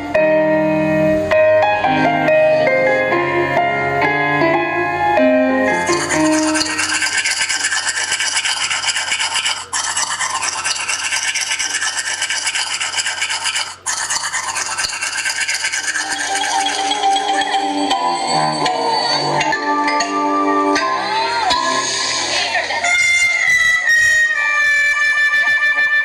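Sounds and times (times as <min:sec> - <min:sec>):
harsh rasping scratching noise: 0:05.8 - 0:19.5.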